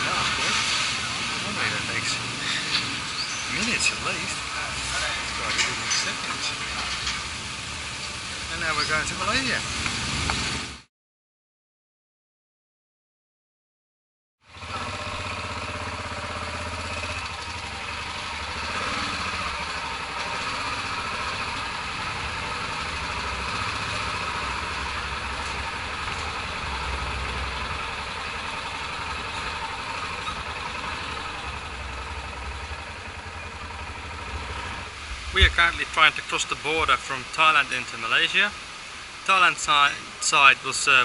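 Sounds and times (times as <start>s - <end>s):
motorcycle engine drone: 0.0s - 10.9s, 14.4s - 39.2s
even hiss: 34.6s - 41.0s.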